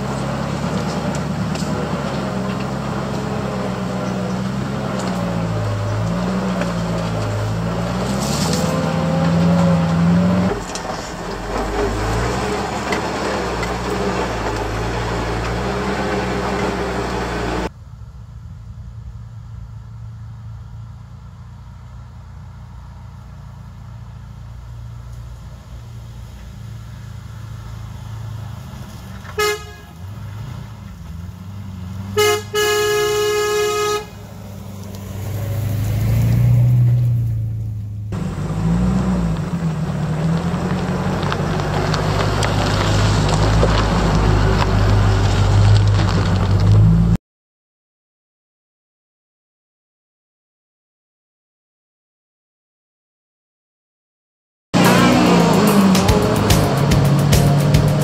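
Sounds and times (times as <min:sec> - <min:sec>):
truck engine running: 0:00.0 - 0:47.1, 0:54.8 - 0:58.0
road noise: 0:00.0 - 0:47.2, 0:54.8 - 0:58.0
truck engine approaching: 0:00.0 - 0:47.2, 0:54.8 - 0:58.0
vehicle horn: 0:29.3 - 0:30.1, 0:32.2 - 0:34.3.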